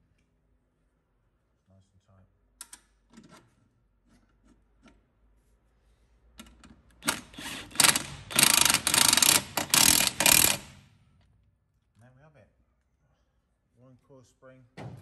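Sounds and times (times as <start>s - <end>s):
impact wrench hammering: 7.0s - 10.9s.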